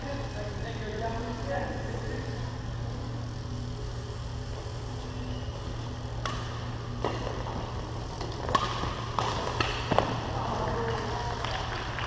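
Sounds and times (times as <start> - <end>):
steady low hum: 0.0 - 12.0
rackets striking shuttlecock: 6.1 - 12.0.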